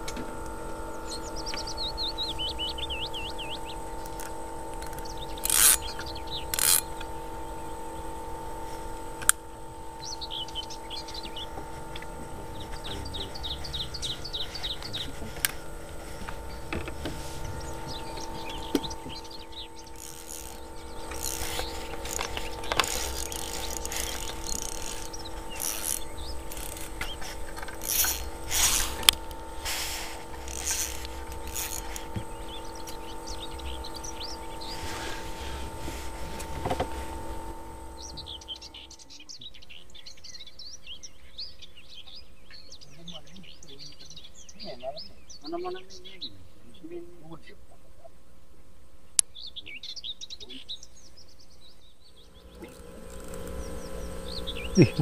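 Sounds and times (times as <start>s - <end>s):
fishing reel clicking and whirring: 0.0s - 38.9s, 52.6s - 55.0s
birds trilling: 0.0s - 55.0s
steady hum: 0.0s - 55.0s.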